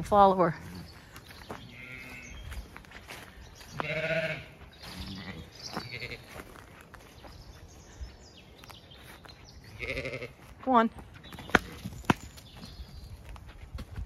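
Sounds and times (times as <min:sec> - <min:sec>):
sheep bleating: 0:01.7 - 0:02.4, 0:03.7 - 0:06.4, 0:09.7 - 0:10.5.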